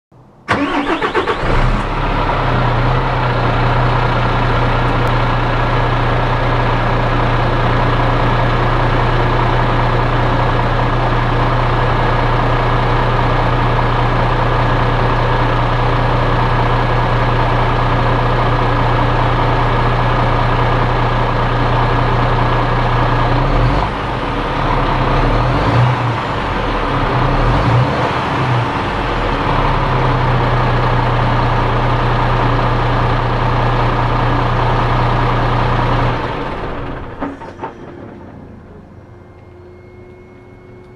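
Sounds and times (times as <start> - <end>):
diesel engine cranking and idling: 0.3 - 40.9.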